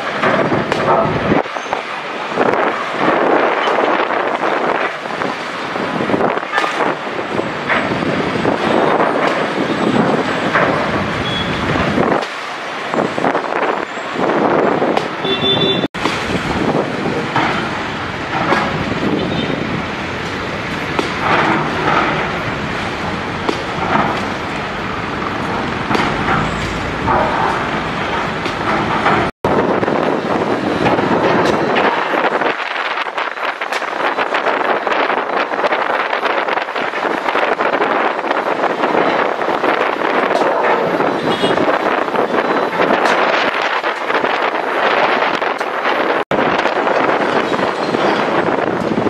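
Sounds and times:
demolition machinery working: 0:00.0 - 0:49.0
broken concrete clattering: 0:20.2 - 0:29.3.

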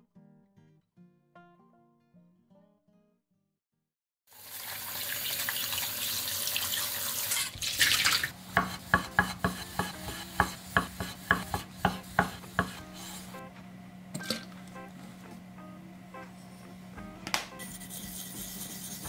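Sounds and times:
tap water spraying into strainer: 0:04.3 - 0:11.6
knife knocking on wooden board: 0:08.6 - 0:12.8.

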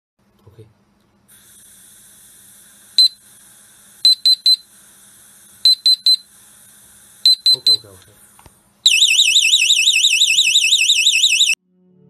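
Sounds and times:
gas hissing from lighter: 0:01.3 - 0:07.4
gas detector alarm beeps: 0:03.0 - 0:03.2, 0:04.0 - 0:04.7, 0:05.6 - 0:06.3, 0:07.2 - 0:07.9, 0:08.9 - 0:11.6.

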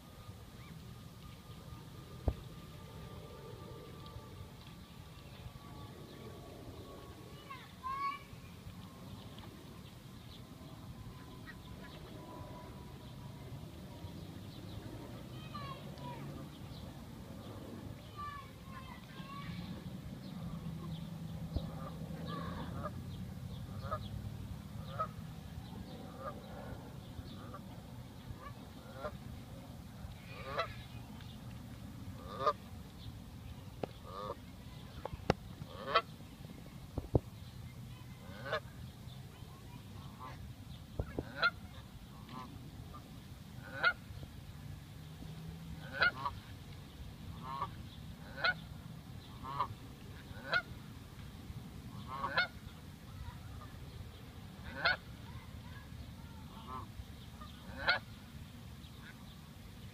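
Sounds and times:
geese honking: 0:30.2 - 0:30.8, 0:32.2 - 0:32.6, 0:34.0 - 0:34.4, 0:35.7 - 0:36.0, 0:41.3 - 0:42.5, 0:45.8 - 0:46.4, 0:47.4 - 0:48.6, 0:49.3 - 0:50.7, 0:52.0 - 0:52.6, 0:54.6 - 0:55.1, 0:56.5 - 0:58.0.

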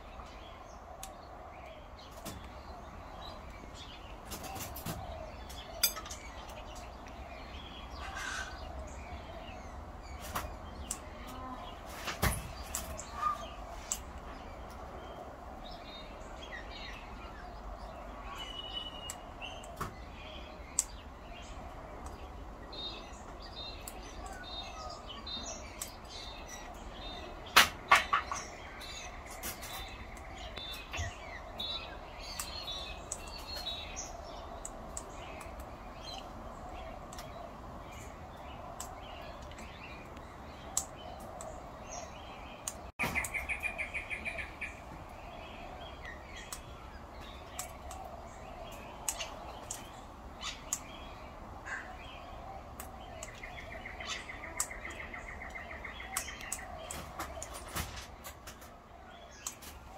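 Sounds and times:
birds knocking on roof: 0:27.4 - 0:28.5
small bird chirps: 0:38.0 - 0:58.0.

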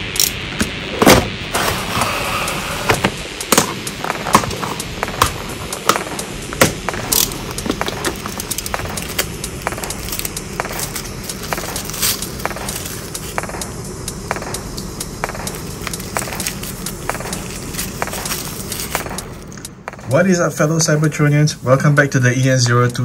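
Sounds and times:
tissue paper rustling: 0:15.9 - 0:19.4.

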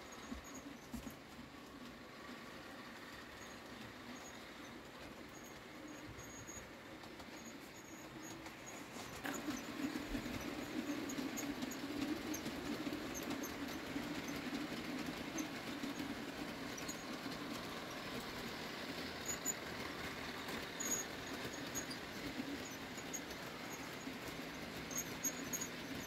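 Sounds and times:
faint clicks of wheels on track: 0:00.0 - 0:26.0
model train motor whirring: 0:01.5 - 0:26.0.

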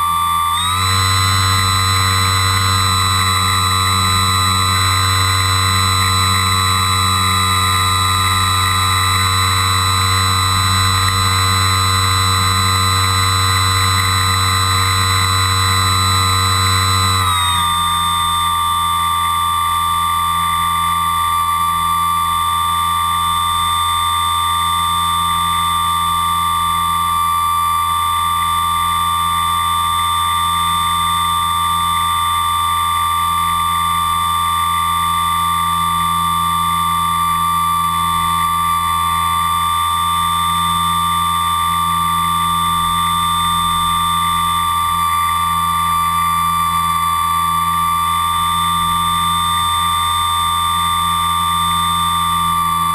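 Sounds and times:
low hum: 0:00.0 - 0:21.6
electric motors whining: 0:00.0 - 0:52.9.

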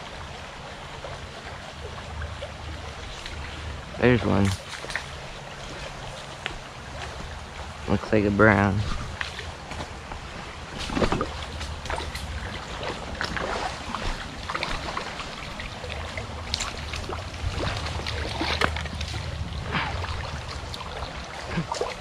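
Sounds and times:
creek water running over rocks: 0:00.0 - 0:22.0
short splashes: 0:08.8 - 0:22.0.

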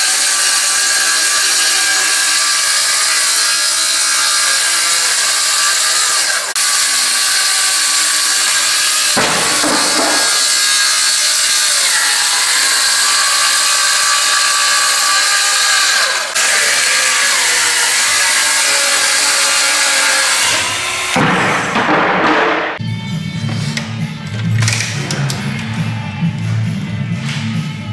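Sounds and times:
circular saw cutting: 0:00.0 - 0:21.8.

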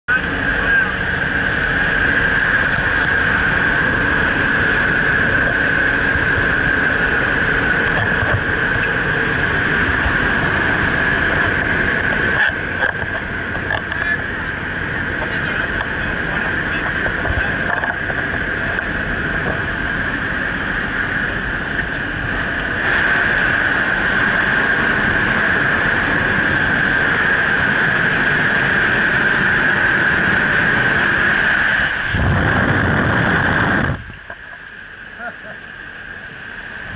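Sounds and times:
plane engine droning: 0:00.1 - 0:36.9
wind rushing: 0:01.0 - 0:34.3.

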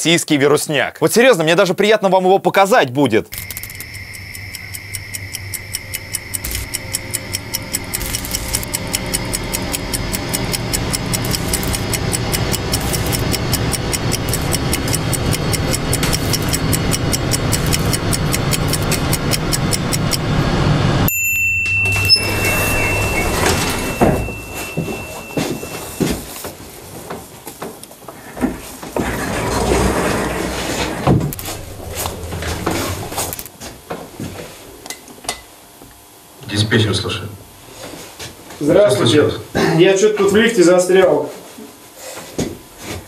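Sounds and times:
steady high tone: 0:03.3 - 0:26.4, 0:31.3 - 0:33.5
fast clock ticking: 0:03.4 - 0:20.3
low rumble: 0:31.1 - 0:33.4.

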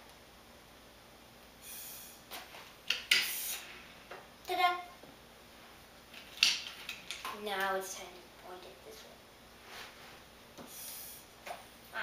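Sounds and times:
breath hissing through straw: 0:01.6 - 0:02.2, 0:10.7 - 0:11.3.

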